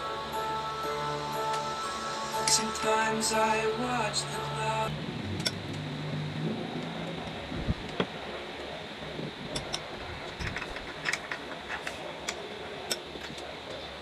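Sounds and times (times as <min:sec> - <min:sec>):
low hum: 0:00.0 - 0:10.6.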